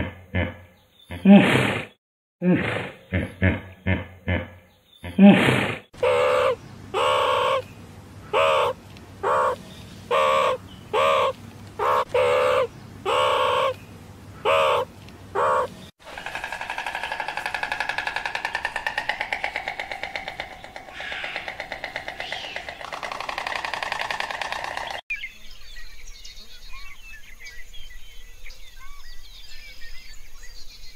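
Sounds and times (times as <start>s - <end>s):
meerkat calling: 6.0s - 7.6s, 8.3s - 13.8s, 14.4s - 15.8s.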